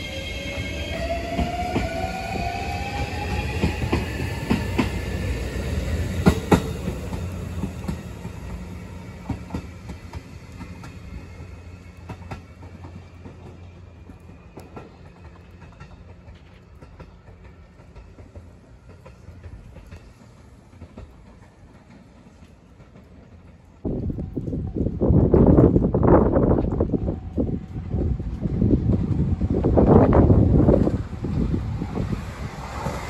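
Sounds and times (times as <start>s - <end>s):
train wheels clacking over rail joints: 6.1s - 24.2s.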